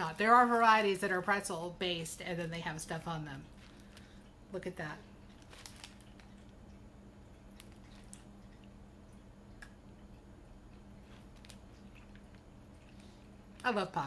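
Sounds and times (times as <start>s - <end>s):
low steady hum: 0.0s - 14.0s
crisp biting and chewing clicks: 7.4s - 13.7s.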